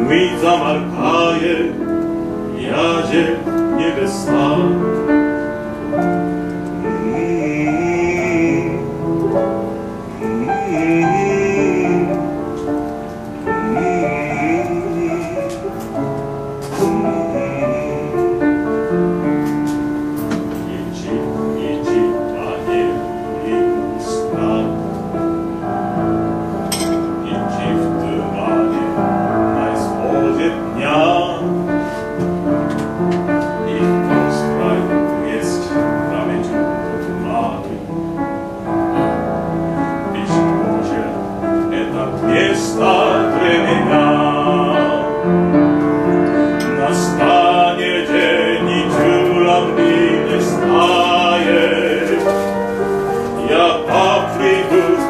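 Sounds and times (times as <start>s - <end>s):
man singing a slow song: 0.0s - 1.9s, 2.5s - 5.0s, 6.8s - 9.1s, 10.2s - 12.7s, 13.5s - 16.1s, 16.7s - 18.8s, 20.4s - 24.9s, 27.2s - 31.7s, 33.6s - 37.9s, 40.1s - 45.3s, 46.4s - 52.6s, 53.3s - 55.0s
piano accompaniment: 0.0s - 55.0s.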